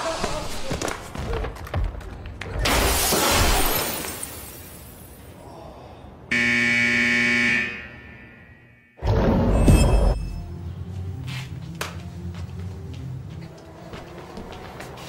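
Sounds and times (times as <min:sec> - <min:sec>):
steady buzzer: 0:06.3 - 0:09.0.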